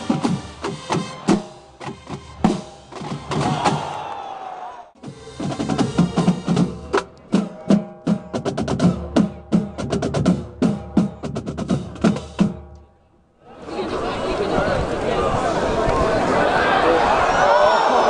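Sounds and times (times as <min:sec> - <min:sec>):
snare and bass drum cadence: 0:00.0 - 0:04.0.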